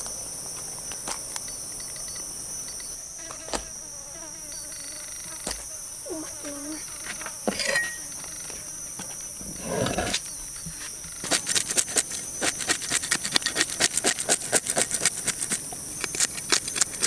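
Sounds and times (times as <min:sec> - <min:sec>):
high insect buzz: 0:00.0 - 0:17.0
knife scraping fish scales: 0:11.2 - 0:17.0.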